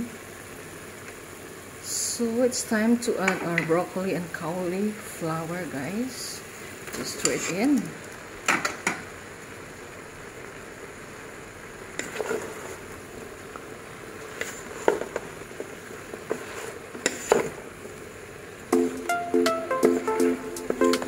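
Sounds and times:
steady low hiss: 0.0s - 21.0s
spatula scraping vegetables in pot: 12.0s - 12.9s, 14.2s - 17.6s
music with plucked notes: 18.7s - 21.0s.

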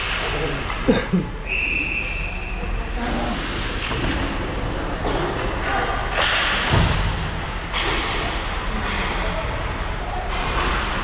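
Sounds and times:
arena background noise: 0.0s - 11.0s
thud against rink boards: 3.7s - 8.4s.

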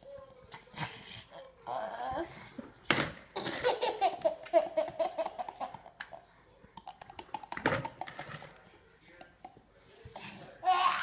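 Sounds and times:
baby laughing: 3.4s - 6.2s, 6.8s - 8.4s.

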